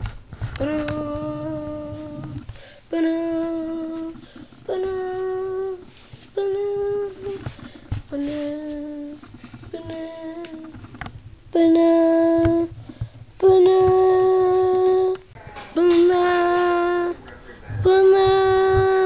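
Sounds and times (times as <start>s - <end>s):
person singing long held notes: 0.6s - 7.5s.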